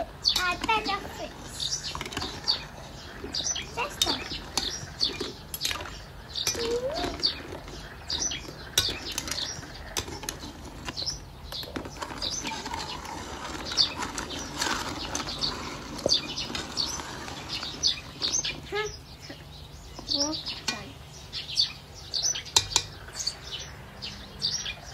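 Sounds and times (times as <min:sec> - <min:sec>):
ladle and toys knocking pot: 0:03.2 - 0:16.6, 0:22.6 - 0:23.0.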